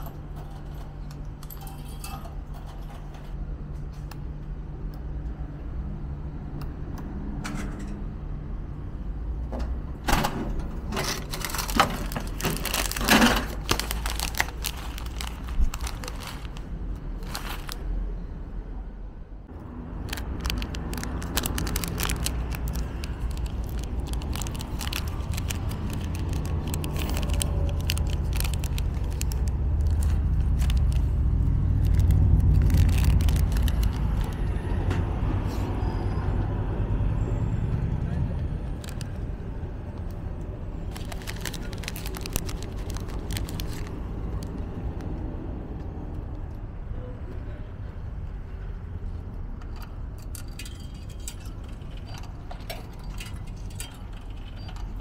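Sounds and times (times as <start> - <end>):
road traffic rumble: 0.0 - 55.0
plastic wrapper tearing and crinkling: 11.2 - 17.8, 20.0 - 34.5, 38.8 - 39.2, 40.8 - 45.0.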